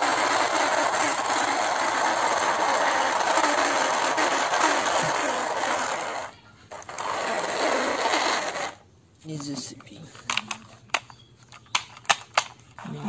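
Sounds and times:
toy excavator motor whirring: 0:00.0 - 0:08.8.

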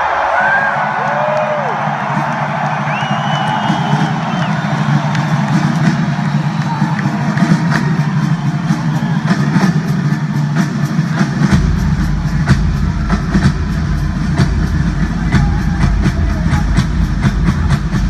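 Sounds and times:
rapid double bass drum roll: 0:11.1 - 0:18.0.

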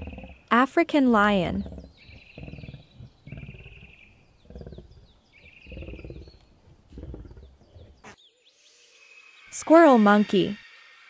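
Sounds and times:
lion roaring: 0:00.0 - 0:00.4, 0:01.5 - 0:08.1.

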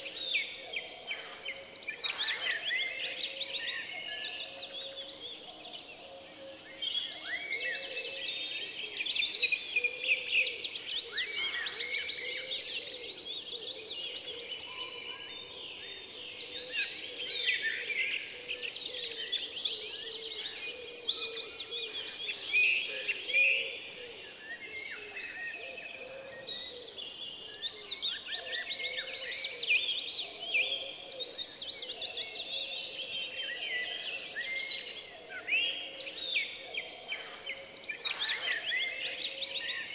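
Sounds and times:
songbirds chorus: 0:00.0 - 0:39.9.

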